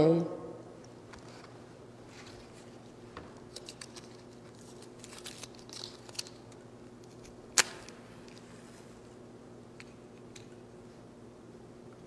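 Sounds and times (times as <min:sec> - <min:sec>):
hands clicking and rustling: 0:03.3 - 0:08.5.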